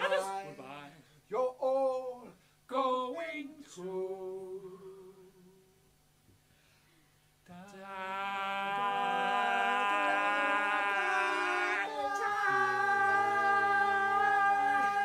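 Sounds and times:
two voices singing held note: 7.5s - 15.0s.

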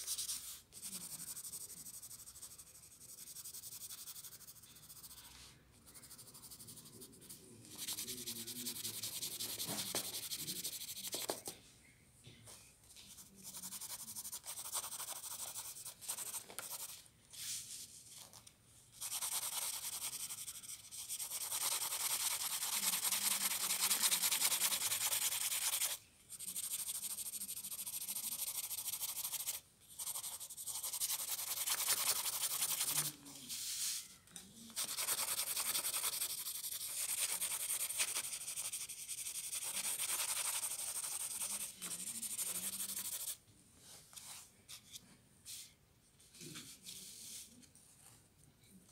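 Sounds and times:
pencil scratching on paper: 0.0s - 11.5s, 13.0s - 17.6s, 19.0s - 34.0s, 34.7s - 43.4s.

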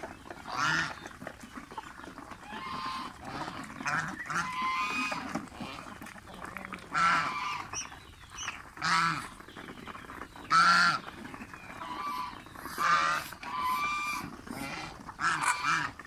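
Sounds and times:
goose honking: 0.5s - 1.0s, 2.4s - 5.9s, 6.9s - 7.8s, 8.4s - 9.4s, 10.5s - 11.1s, 11.7s - 16.0s.

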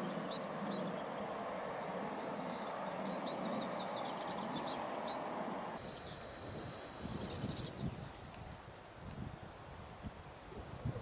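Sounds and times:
small birds chirping: 0.0s - 8.3s, 9.6s - 10.1s.

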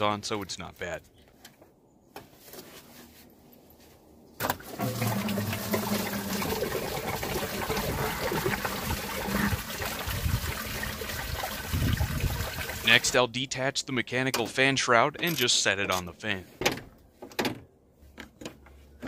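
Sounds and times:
coolant gushing from hose: 4.6s - 13.1s.

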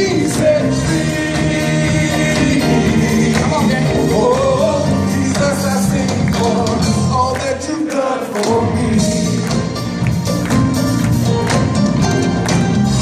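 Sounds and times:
bass: 0.0s - 7.5s, 8.5s - 13.0s
men singing into microphones: 0.0s - 10.0s
drums: 0.0s - 13.0s
keyboard: 0.0s - 13.0s
live band music: 0.0s - 13.0s.

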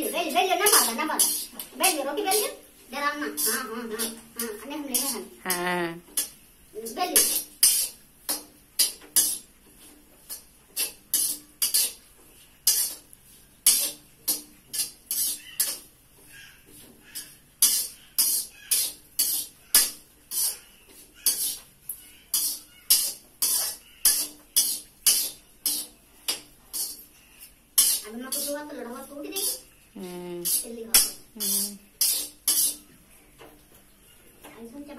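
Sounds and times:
metal ladle scraping wok: 0.0s - 2.4s, 3.2s - 5.4s, 7.2s - 9.5s, 10.2s - 12.0s, 12.6s - 15.9s, 17.2s - 21.6s, 22.3s - 27.2s, 27.8s - 28.6s, 30.4s - 30.7s, 31.4s - 32.9s.

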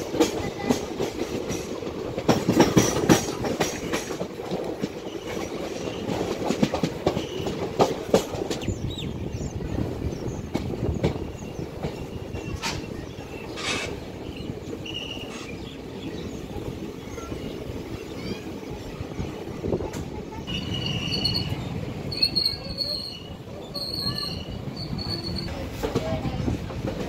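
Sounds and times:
train wheels rumbling on rail: 0.0s - 27.0s
high wheel squeal: 20.5s - 25.6s.

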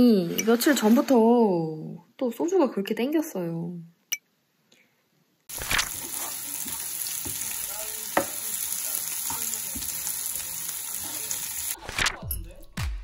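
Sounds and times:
onions sizzling in frying pan: 5.5s - 11.8s
spatula knocking pan: 6.0s - 8.6s.

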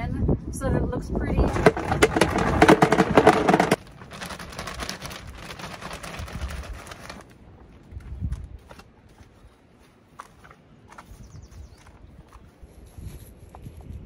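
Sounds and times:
rocks clattering into plastic tub: 1.4s - 7.2s
soil pouring from bag: 4.0s - 7.2s.

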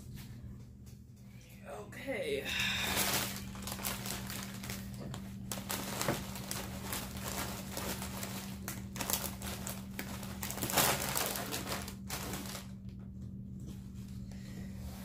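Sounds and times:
plastic chip bag crinkling: 2.8s - 12.8s.

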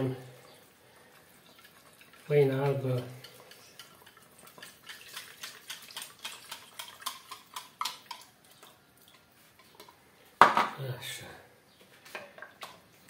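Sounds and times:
whisk scraping a bowl: 1.6s - 8.0s.

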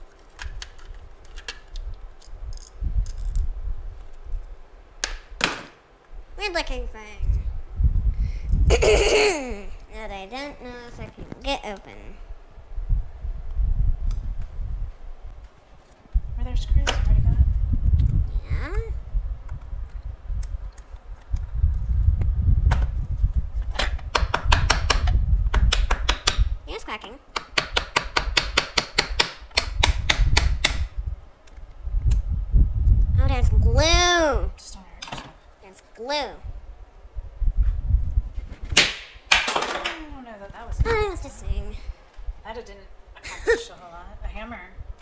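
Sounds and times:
plastic clicking and cracking: 0.1s - 3.4s.

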